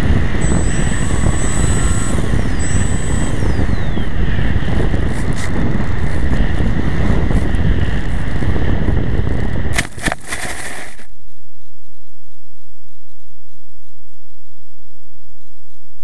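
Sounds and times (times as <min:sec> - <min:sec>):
electric motor whine: 0:00.0 - 0:11.1
wind rushing over microphone: 0:00.0 - 0:11.1.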